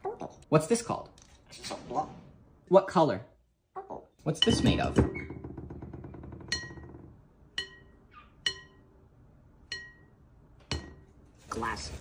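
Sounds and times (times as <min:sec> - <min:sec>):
glass bowl ringing pings: 0:06.5 - 0:06.8, 0:07.5 - 0:08.9, 0:09.6 - 0:11.0.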